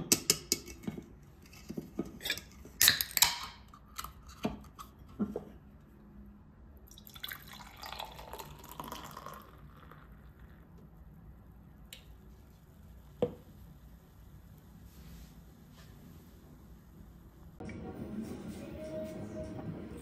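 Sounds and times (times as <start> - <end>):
liquid running: 6.9 - 10.6.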